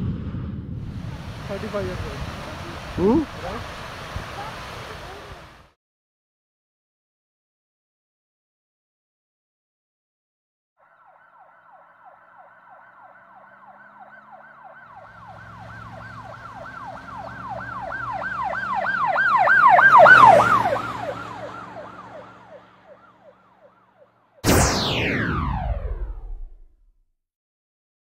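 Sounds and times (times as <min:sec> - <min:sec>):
road traffic rumble: 0:00.0 - 0:05.5, 0:11.7 - 0:24.4
emergency vehicle siren yelp: 0:10.8 - 0:26.6.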